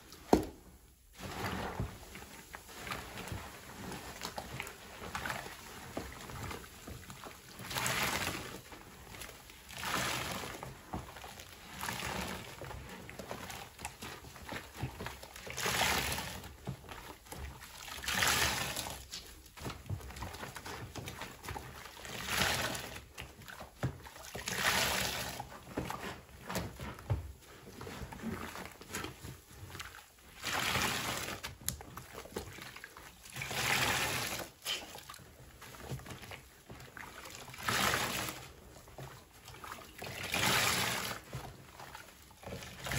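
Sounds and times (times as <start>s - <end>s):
sponges squelching: 0.1s - 42.9s
water pouring into basin: 33.2s - 35.2s, 39.6s - 41.3s.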